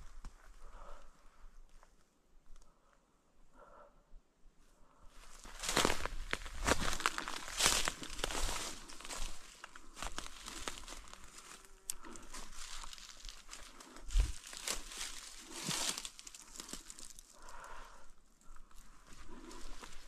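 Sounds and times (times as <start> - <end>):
dry leaves rustling and crunching: 5.4 - 17.5.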